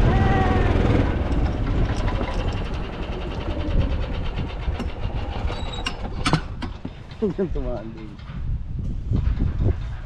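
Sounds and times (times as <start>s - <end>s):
small engine running: 0.0s - 6.2s.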